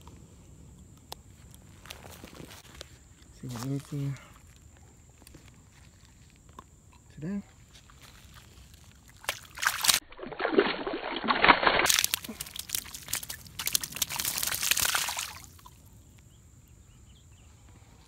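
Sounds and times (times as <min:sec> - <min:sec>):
fish splashing in shallow water: 0:08.3 - 0:15.8.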